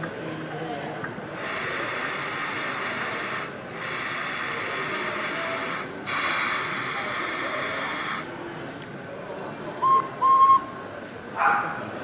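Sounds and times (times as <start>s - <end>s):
faint background chatter: 0.0s - 12.0s
steady hiss: 1.3s - 8.4s.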